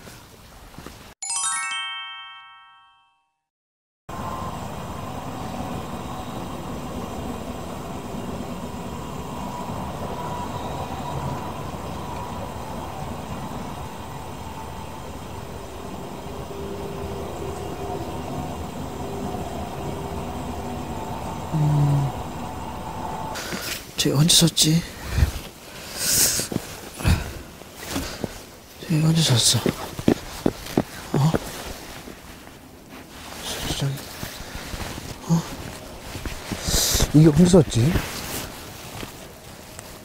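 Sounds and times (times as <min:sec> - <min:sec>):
faint humming tones: 0:04.2 - 0:23.4.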